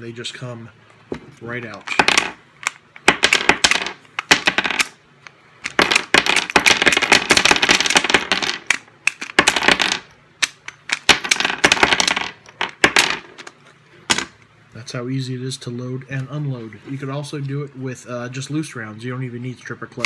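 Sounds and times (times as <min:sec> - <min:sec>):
cartridges clinking on wooden table: 0:03.0 - 0:05.0, 0:05.6 - 0:13.5.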